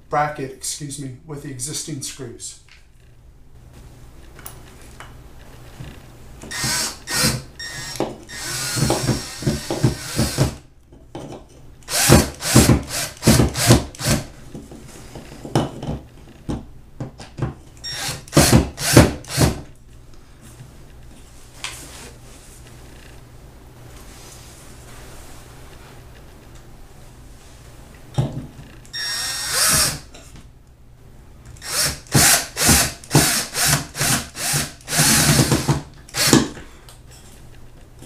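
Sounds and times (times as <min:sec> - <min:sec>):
power drill driving screws: 0:06.5 - 0:10.6, 0:11.9 - 0:14.2, 0:17.8 - 0:19.6, 0:28.9 - 0:30.1, 0:31.6 - 0:36.4.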